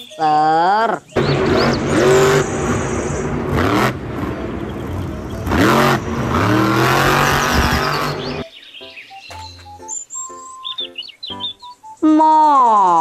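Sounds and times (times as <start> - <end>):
monster truck engine revving: 1.2 - 8.4.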